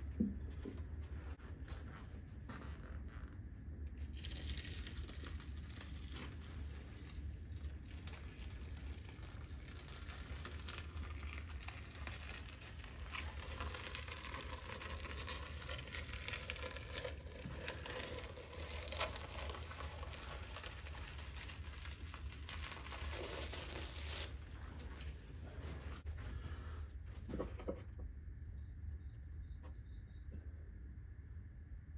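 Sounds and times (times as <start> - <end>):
low steady hum: 0.0 - 31.9
plastic film crinkling: 4.0 - 26.1.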